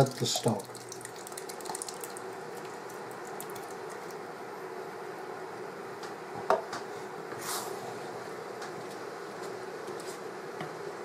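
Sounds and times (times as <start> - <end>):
stock pouring into a hot pan: 0.0 - 4.2
wet simmering and squelching: 0.1 - 4.2.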